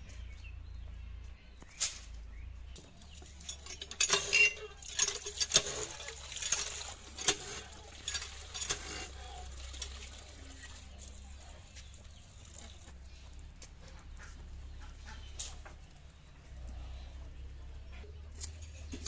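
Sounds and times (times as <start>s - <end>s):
metal wok clinking: 3.3s - 11.0s.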